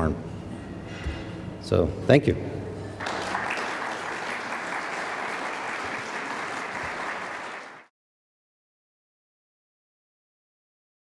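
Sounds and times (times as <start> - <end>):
audience applauding: 3.0 - 7.9.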